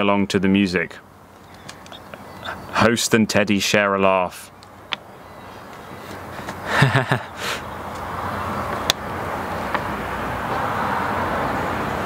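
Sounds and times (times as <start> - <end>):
car engine and tyre noise: 4.5 - 12.0.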